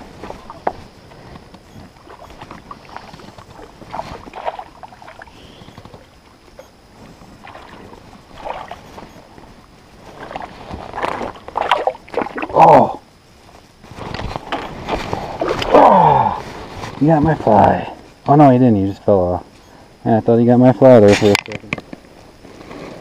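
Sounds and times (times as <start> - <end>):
water splashing and sloshing: 0.0 - 16.9.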